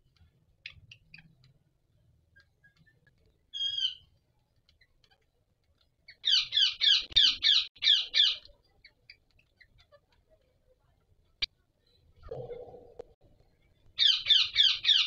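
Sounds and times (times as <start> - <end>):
parakeet calls: 3.5 - 4.1, 6.1 - 10.0, 14.0 - 15.0.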